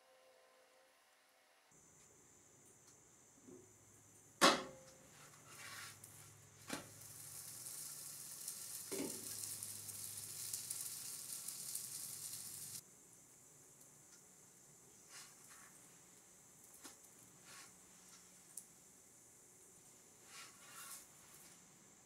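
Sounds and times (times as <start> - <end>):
bread sizzling in a skillet: 5.1 - 12.8, 19.8 - 22.0.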